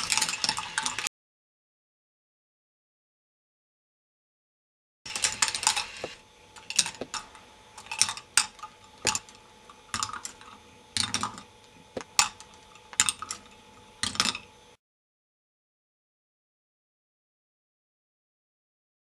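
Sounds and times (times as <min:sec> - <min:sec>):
plastic balls clattering on track: 0:00.0 - 0:01.1
faint steady hum: 0:05.1 - 0:14.8.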